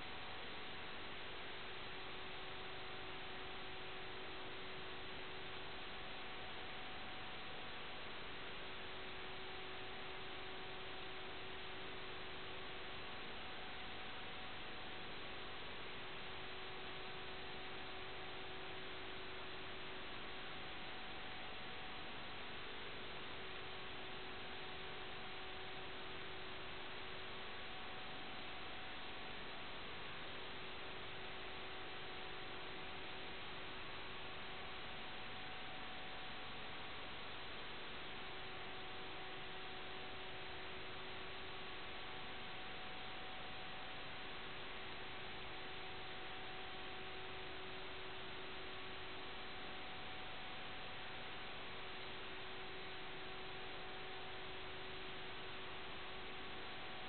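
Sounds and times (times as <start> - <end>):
faint constant hum: 0.0 - 57.0.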